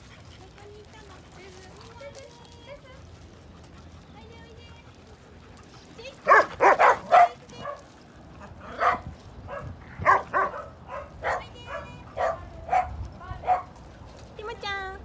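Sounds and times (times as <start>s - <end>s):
dogs barking: 6.0s - 13.8s.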